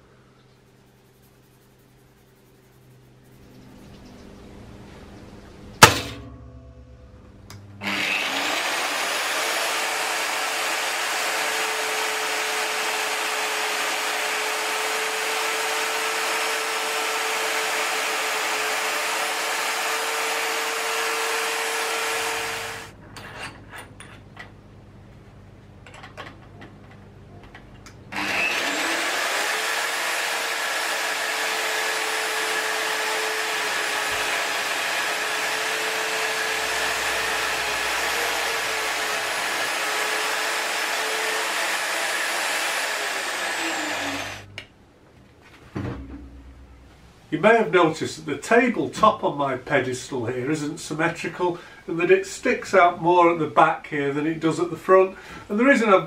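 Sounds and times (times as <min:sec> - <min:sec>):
magnetic drill whining into steel: 0:07.8 - 0:22.9, 0:28.1 - 0:44.5
small clicks and knocks: 0:25.8 - 0:28.0.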